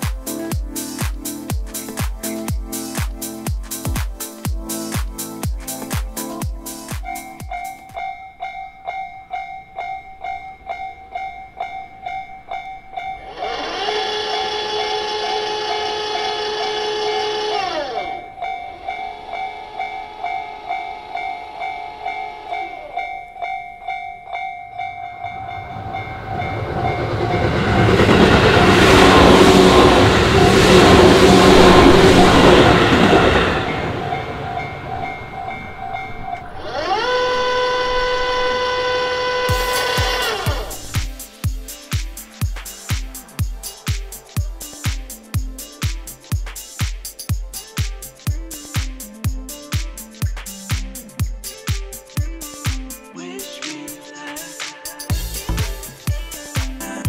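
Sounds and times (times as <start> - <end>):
electric train rumbling: 0.0 - 48.7, 55.1 - 57.0
electronic crossing warning bell: 7.0 - 27.9, 33.6 - 40.2
steady pitched tone: 7.2 - 41.1
crossing barrier motor whir: 36.4 - 40.9.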